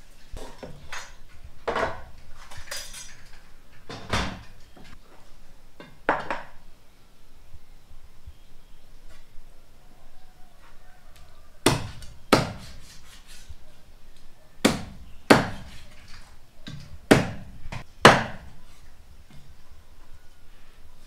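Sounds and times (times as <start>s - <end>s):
cleaver chopping meat on wood: 11.6s - 12.8s, 14.6s - 15.8s, 16.7s - 18.5s.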